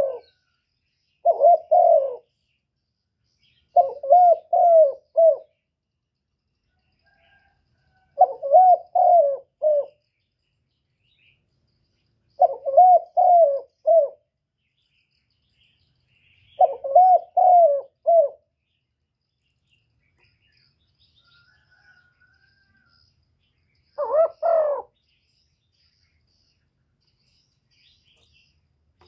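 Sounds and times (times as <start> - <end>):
dove cooing: 0.0 - 0.4, 1.2 - 2.3, 3.7 - 5.6, 7.3 - 10.0, 12.4 - 14.3, 16.5 - 18.5, 24.0 - 25.0.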